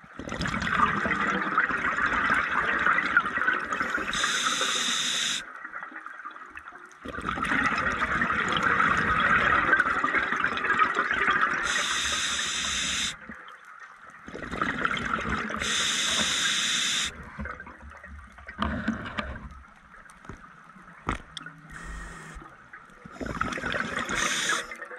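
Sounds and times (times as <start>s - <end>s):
scuba regulator hiss: 3.9s - 5.4s, 11.6s - 13.2s, 15.6s - 17.1s, 21.7s - 22.4s, 23.9s - 24.8s
bubbling exhalations underwater: 14.3s - 16.2s, 23.0s - 24.9s.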